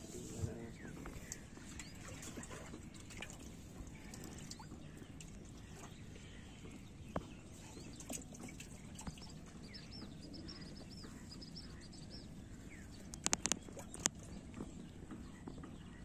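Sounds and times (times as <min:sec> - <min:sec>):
bird chirping: 0:00.2 - 0:16.0
sharp clicks: 0:13.1 - 0:14.2.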